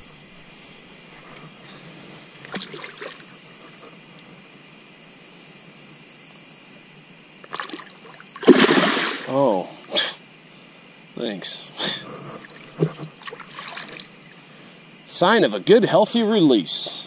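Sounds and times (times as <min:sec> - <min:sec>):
shallow water trickling and lapping: 0:01.2 - 0:04.3, 0:07.4 - 0:09.4, 0:12.3 - 0:14.7
small water splashes: 0:02.4 - 0:03.3, 0:07.4 - 0:09.4, 0:13.2 - 0:14.2.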